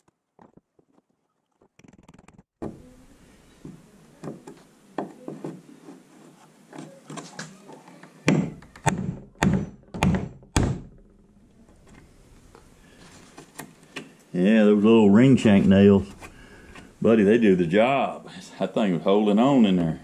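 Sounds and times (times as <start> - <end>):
loud knocks: 8.3 - 11.0.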